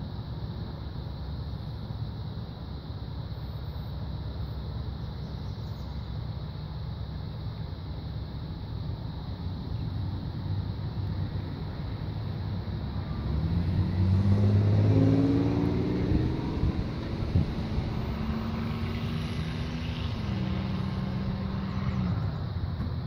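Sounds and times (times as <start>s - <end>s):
engine running: 8.5s - 23.0s.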